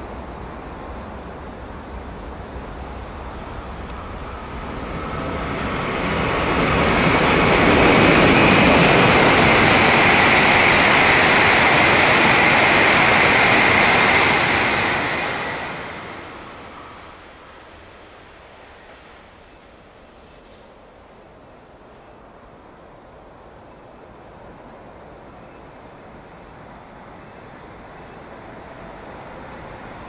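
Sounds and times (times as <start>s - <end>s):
train rushing past: 0.0s - 30.0s.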